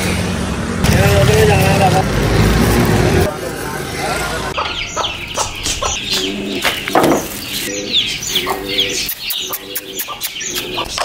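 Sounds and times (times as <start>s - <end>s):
adult birds calling: 3.5s - 11.0s
chicks peeping: 4.1s - 11.0s.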